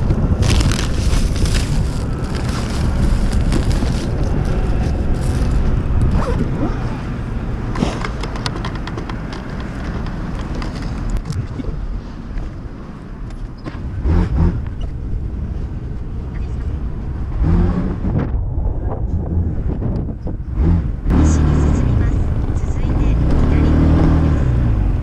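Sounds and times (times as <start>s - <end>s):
bags rustling and crinkling: 0.0s - 6.7s
wind rumble on microphone: 0.0s - 25.0s.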